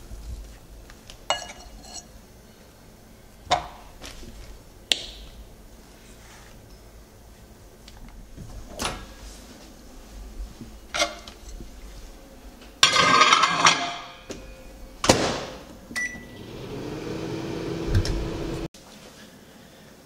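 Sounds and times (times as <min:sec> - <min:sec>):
dish clattering onto glass turntable: 0:12.8 - 0:14.2
microwave oven humming: 0:14.3 - 0:18.7
keypad beeps: 0:16.0 - 0:16.4.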